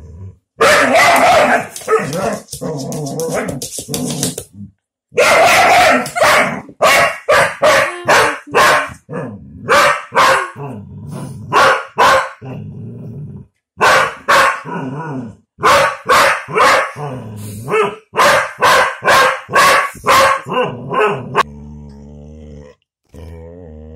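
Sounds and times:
dog barking: 0.6s - 2.5s, 5.1s - 10.7s, 11.5s - 12.4s, 13.8s - 14.8s, 15.6s - 17.1s, 17.7s - 21.5s
dog growling: 10.5s - 11.6s, 12.4s - 13.5s, 20.7s - 23.9s.

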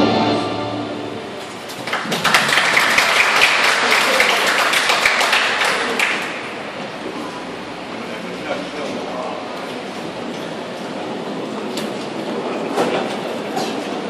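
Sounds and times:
accompanying music: 0.0s - 1.5s
audience applause: 1.5s - 7.1s.

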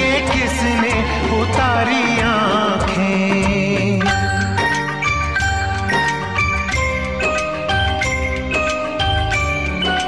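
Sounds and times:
instrumental film music: 0.0s - 10.0s
bright chiming notes: 4.1s - 10.0s.

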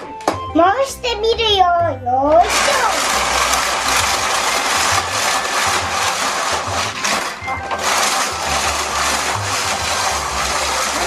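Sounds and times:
toy track mechanism whirring: 2.2s - 11.0s.

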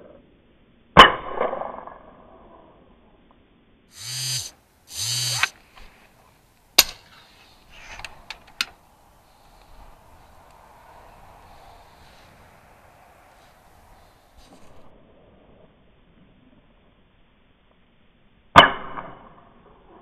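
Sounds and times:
brief noisy bursts: 4.0s - 5.6s.

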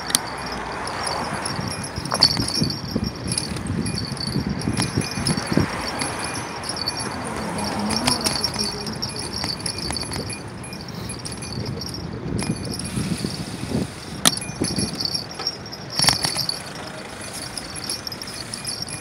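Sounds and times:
bicycle rattling over bricks: 0.0s - 19.0s.

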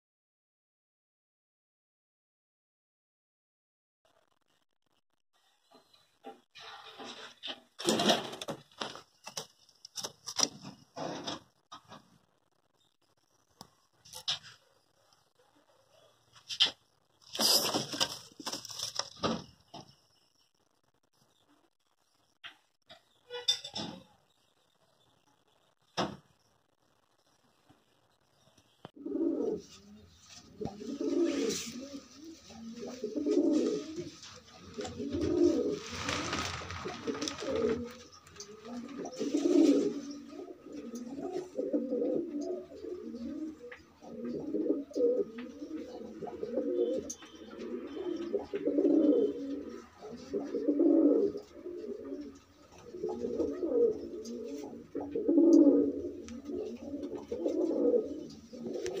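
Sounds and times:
pigeons cooing: 29.0s - 59.0s.

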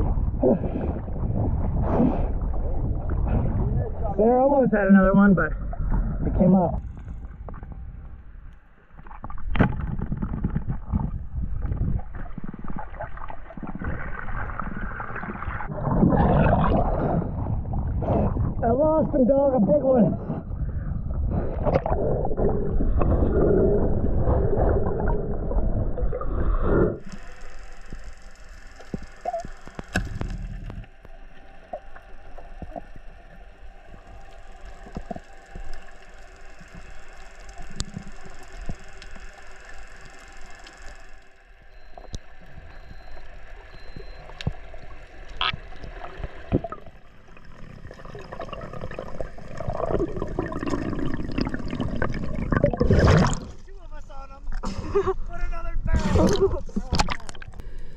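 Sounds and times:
muffled underwater hush: 0.0s - 19.2s, 20.0s - 57.9s
sea water sloshing and splashing: 8.9s - 18.6s, 20.7s - 53.8s, 55.9s - 57.8s
faint underwater clicks: 26.1s - 53.7s, 56.2s - 57.9s.

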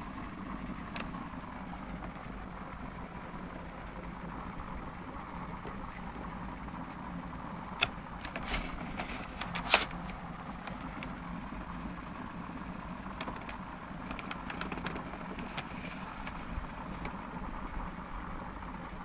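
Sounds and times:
steady low background noise: 0.0s - 19.0s
fingers clicking on box: 13.2s - 16.4s.

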